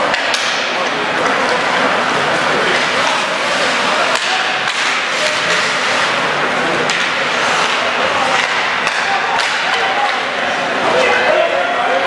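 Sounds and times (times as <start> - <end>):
hockey sticks clacking: 0.0 - 11.4
skates scraping on ice: 1.2 - 11.1.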